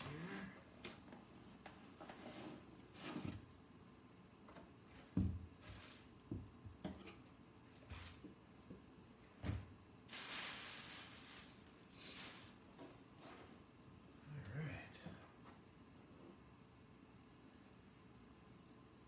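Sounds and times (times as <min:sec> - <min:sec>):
rustling: 0:05.6 - 0:06.2, 0:10.1 - 0:13.4
foam packaging sliding: 0:10.1 - 0:12.7.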